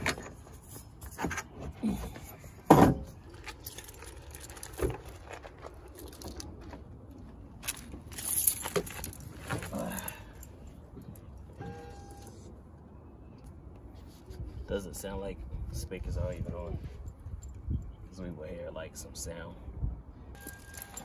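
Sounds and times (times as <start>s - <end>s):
handling metal amplifier: 0.0s - 6.9s, 7.6s - 10.0s.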